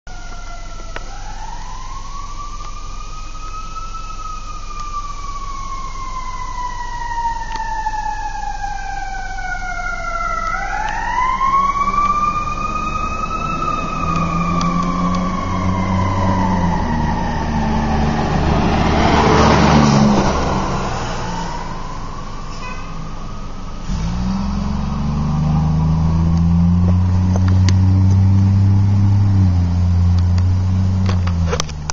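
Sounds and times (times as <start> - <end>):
truck engine rumble: 0.0 - 31.9
fire engine siren wailing: 0.1 - 31.9.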